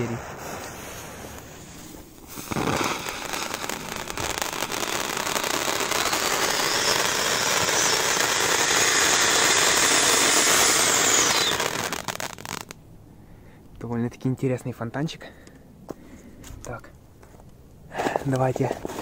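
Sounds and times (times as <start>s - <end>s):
firework fountain hissing: 0.0s - 12.7s.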